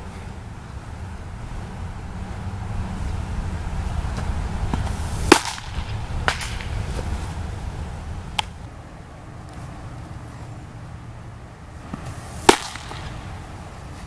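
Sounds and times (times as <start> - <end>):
wind rumble on microphone: 0.0 - 8.8
ball smacking into leather mitt: 4.2 - 7.2, 11.9 - 13.2.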